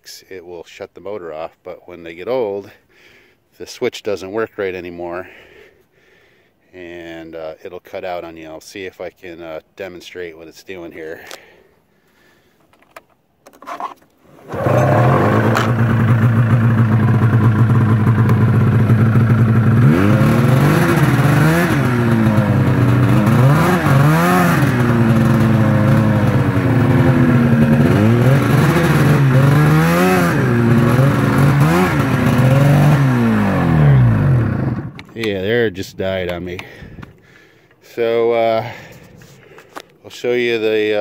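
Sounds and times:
snowmobile engine revving: 14.3 - 35.0.

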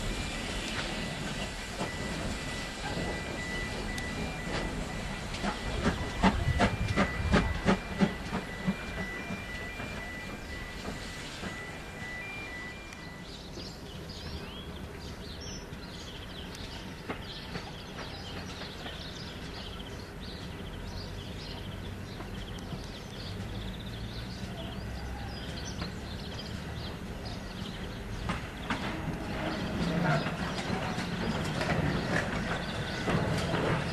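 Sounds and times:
small birds chirping: 11.4 - 33.9.

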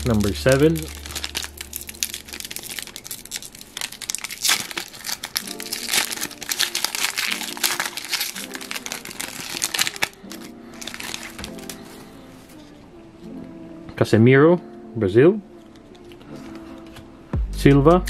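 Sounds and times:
foil pack crinkling and tearing: 0.0 - 12.7
background music with held notes: 0.0 - 18.0.

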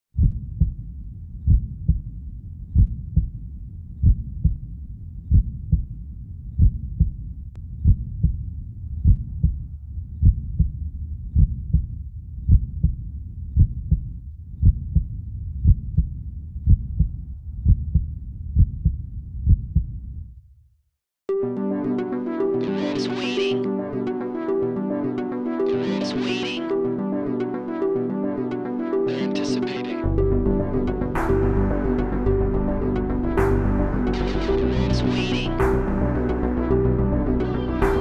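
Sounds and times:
heartbeat thumps: 0.1 - 20.1.

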